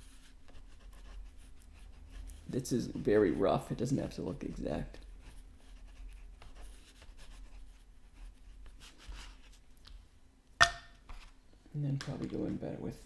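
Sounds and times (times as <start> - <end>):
drawing stick scratching paper: 0.0 - 9.6.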